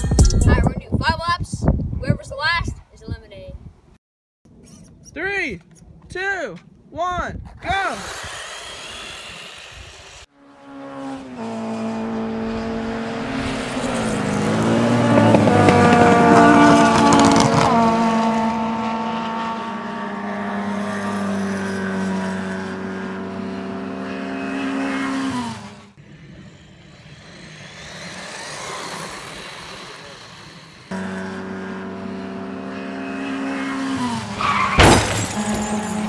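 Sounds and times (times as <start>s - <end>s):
rc truck motor whine: 7.9s - 10.3s, 20.8s - 34.4s
tyres clattering over dirt: 34.4s - 36.0s.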